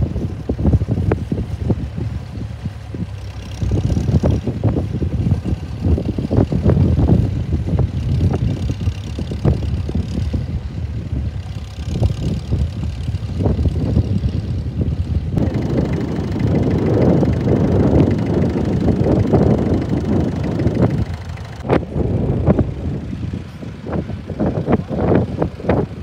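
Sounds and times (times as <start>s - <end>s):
tractor engine running under load: 0.0s - 26.0s.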